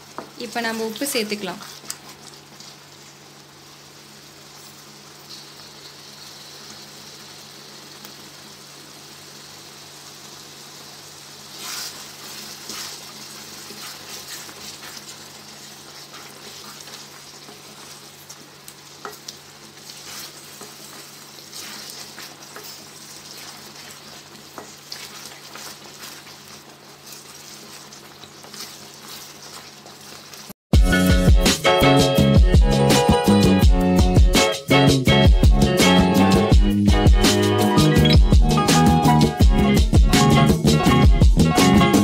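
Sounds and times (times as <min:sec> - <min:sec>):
sauce sizzling in oil: 0:00.0 - 0:34.2
spatula scraping pan: 0:11.5 - 0:15.2, 0:19.8 - 0:30.5.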